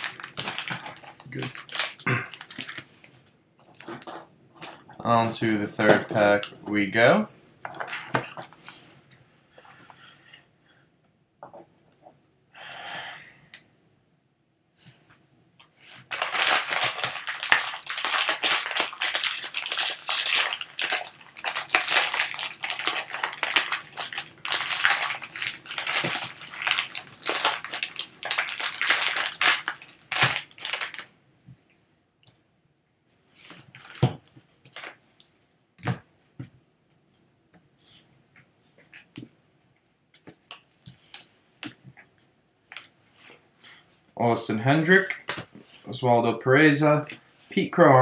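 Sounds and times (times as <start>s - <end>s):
foil wrapper crinkling and tearing: 0.0s - 2.9s, 15.9s - 31.1s.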